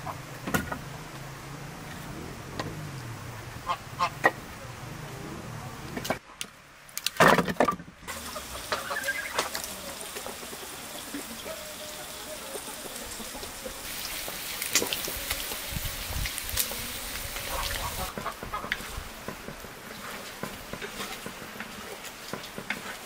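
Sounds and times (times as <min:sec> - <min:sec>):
firewood logs clunking together: 0:00.4 - 0:01.2, 0:05.8 - 0:10.5, 0:18.1 - 0:23.0
meat sizzling in a pot: 0:08.1 - 0:18.1.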